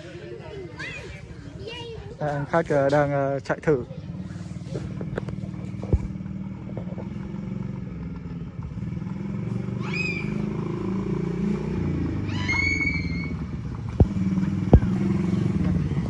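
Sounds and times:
quad bike engine running: 0:02.2 - 0:16.0
short high calls: 0:09.8 - 0:10.5, 0:12.2 - 0:13.4.

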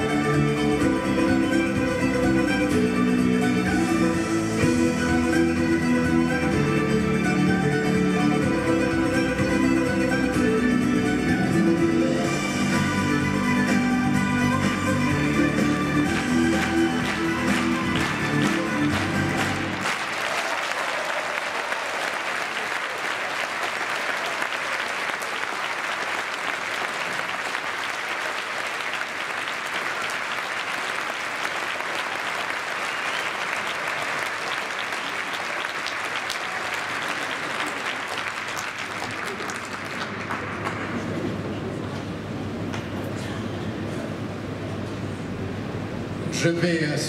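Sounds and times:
music: 0:00.0 - 0:20.1
audience applauding: 0:16.0 - 0:41.8.

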